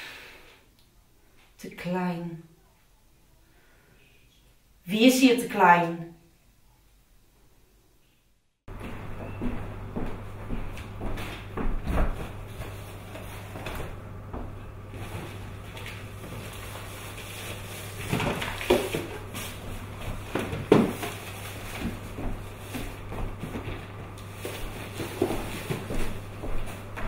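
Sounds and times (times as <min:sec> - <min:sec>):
rustling of cardboard boxes: 0:08.7 - 0:27.0
steady low hum: 0:08.7 - 0:27.0.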